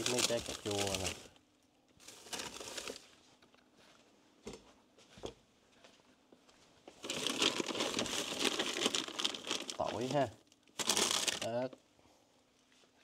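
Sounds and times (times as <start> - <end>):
packaging crinkling: 0.0 - 1.4, 2.0 - 3.1, 7.0 - 11.6.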